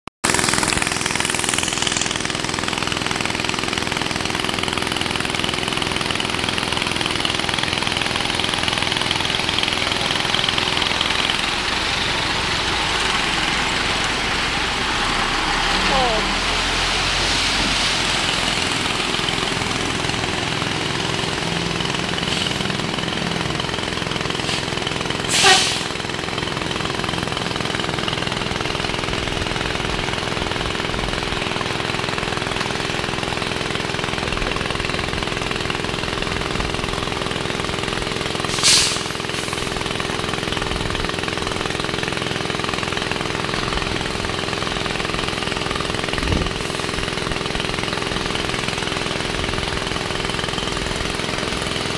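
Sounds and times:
diesel engine idling: 0.2s - 51.9s
rain on a flooded road: 9.4s - 22.0s
loud hissing bursts: 24.3s - 26.0s, 38.5s - 39.8s.

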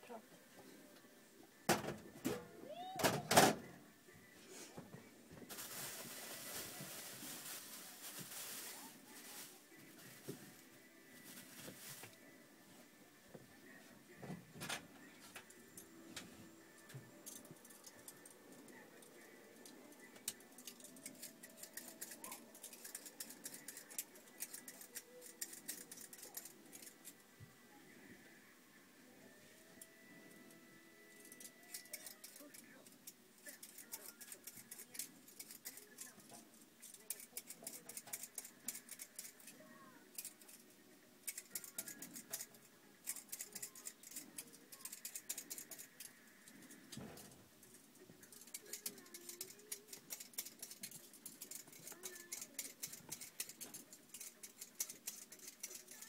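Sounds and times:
faint distant voices: 0.0s - 56.0s
faint irregular clicks and crackles: 14.2s - 27.2s, 31.1s - 56.0s.

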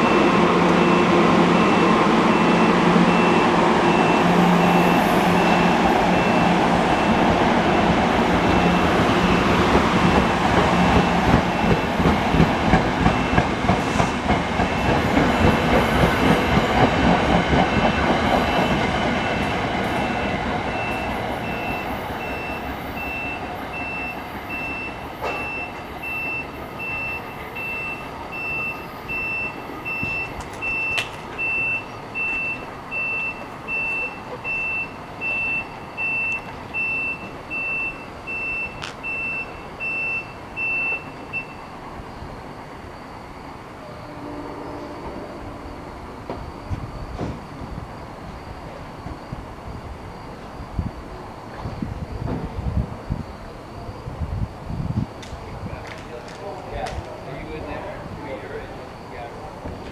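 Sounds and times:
train wheels clattering: 8.6s - 20.0s.

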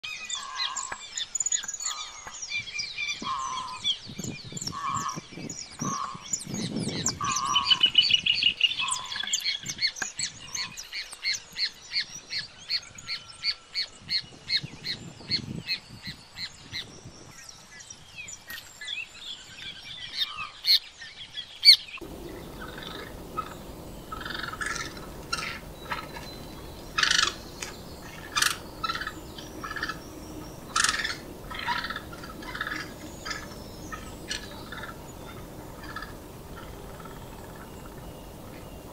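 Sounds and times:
birds chirping: 0.1s - 10.9s, 22.0s - 38.9s
high repeated bird notes: 22.0s - 38.9s
steady hiss: 22.0s - 38.9s.

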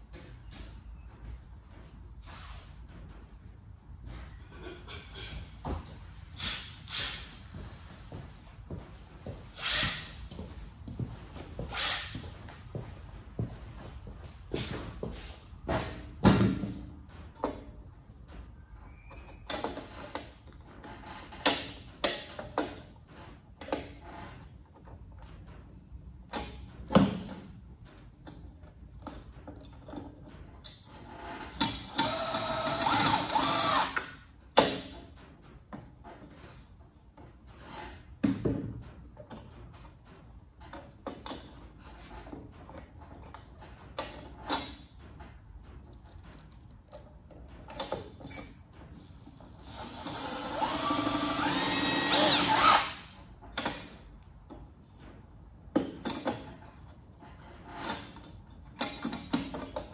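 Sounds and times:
cordless drill running: 31.8s - 34.0s, 49.6s - 52.9s.

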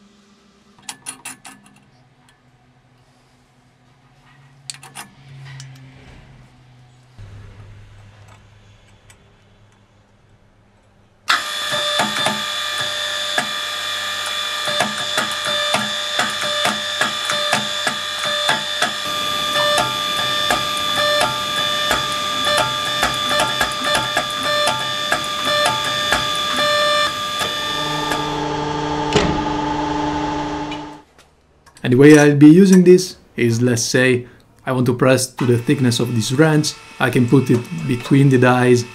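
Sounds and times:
hydraulic power unit whine: 11.1s - 31.1s, 35.3s - 38.9s.

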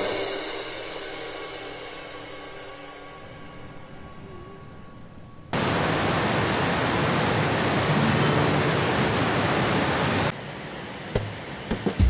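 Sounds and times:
waterfall rushing: 5.6s - 12.0s.

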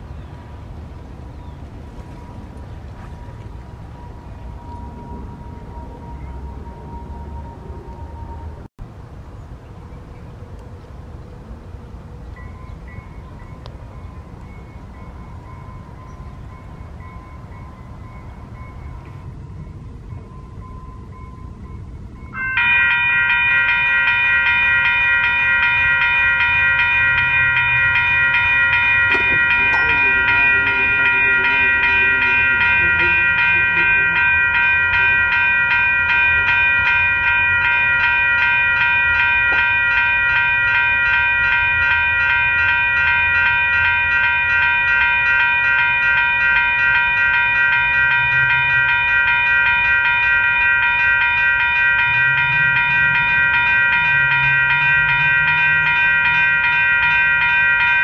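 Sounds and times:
level crossing bell ringing: 22.3s - 58.0s.

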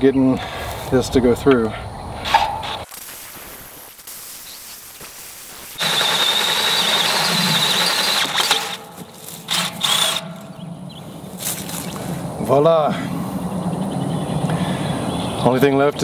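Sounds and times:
drill grinding squeals: 5.8s - 10.6s
drill bit squealing in steel pipe: 5.9s - 8.5s.

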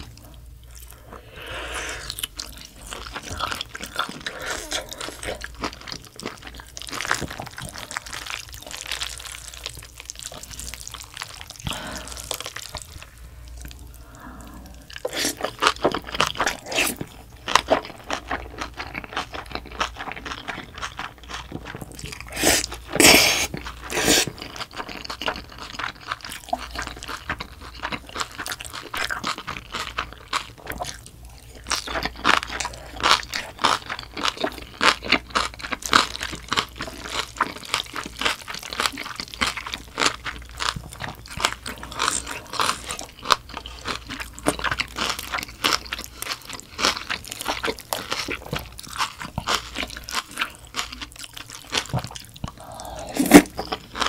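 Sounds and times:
noodles being slurped: 51.8s - 54.0s.

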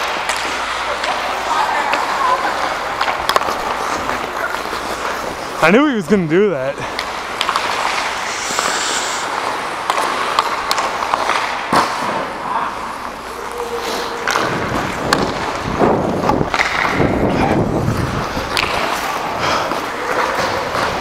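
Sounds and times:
skate blades scraping ice: 6.8s - 12.2s, 13.4s - 21.0s.

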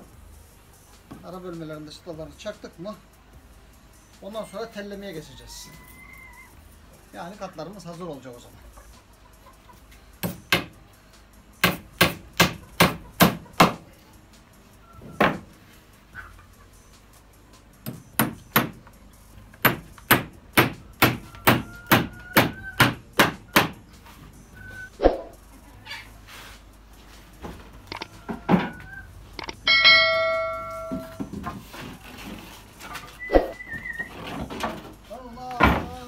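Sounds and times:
hammer driving nails into wood: 10.2s - 10.8s, 11.6s - 13.8s, 17.8s - 18.8s, 19.6s - 23.8s.

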